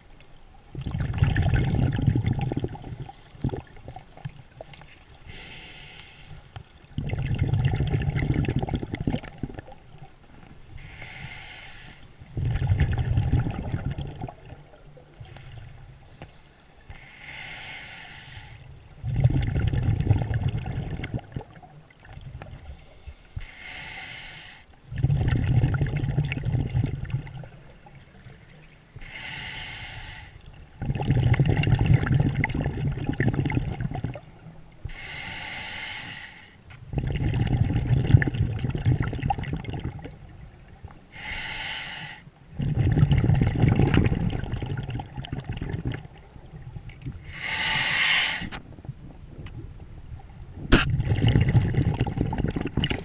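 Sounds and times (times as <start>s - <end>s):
rumble of exhaled bubbles: 0.7s - 4.7s, 6.8s - 10.1s, 12.3s - 15.9s, 18.8s - 22.8s, 24.8s - 29.0s, 30.4s - 35.0s, 36.8s - 41.0s, 42.5s - 47.6s, 48.5s - 53.0s
regulator inhale hiss: 5.3s - 6.5s, 10.8s - 12.3s, 16.0s - 18.7s, 22.6s - 24.7s, 29.0s - 30.5s, 34.8s - 36.6s, 41.1s - 42.3s, 47.2s - 48.6s.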